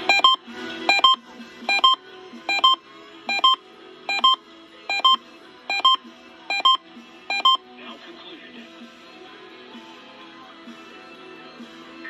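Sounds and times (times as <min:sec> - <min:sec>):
two-note electronic beep: 0:00.0 - 0:07.6
faint radio music: 0:00.0 - 0:12.0.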